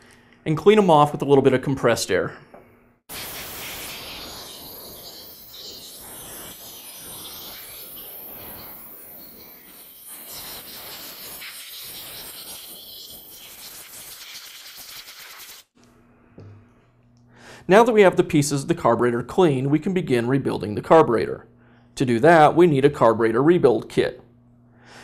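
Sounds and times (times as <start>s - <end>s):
compressed air blow gun hissing: 3.1s - 15.7s.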